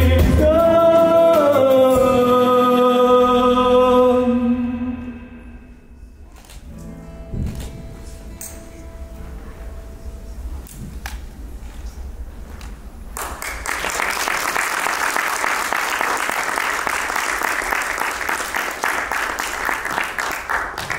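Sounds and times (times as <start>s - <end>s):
audience applauding: 13.2s - 20.9s.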